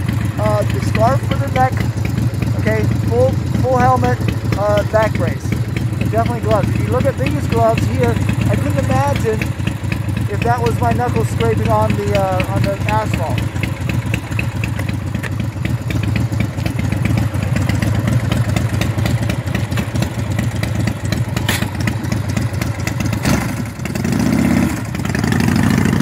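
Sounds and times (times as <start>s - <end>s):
motorcycle engine idling and revving: 0.0s - 26.0s.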